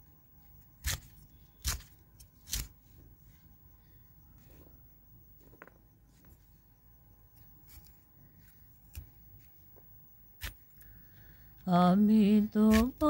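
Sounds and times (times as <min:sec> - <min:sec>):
knife snipping bean pods: 0:00.8 - 0:02.7, 0:12.4 - 0:13.0.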